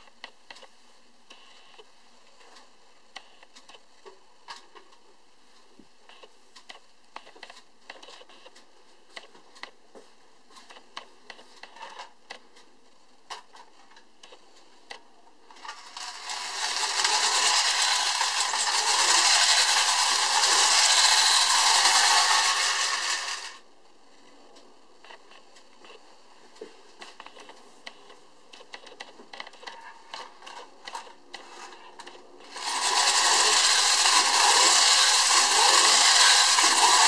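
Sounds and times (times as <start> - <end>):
toy flywheel motor whirring: 15.5 - 23.6, 32.4 - 37.0.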